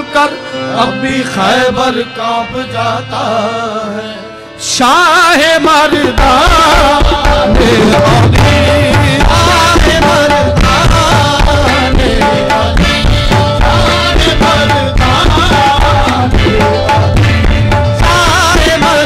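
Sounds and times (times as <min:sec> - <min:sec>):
harmonium: 0:00.0 - 0:19.0
tabla playing: 0:04.6 - 0:19.0.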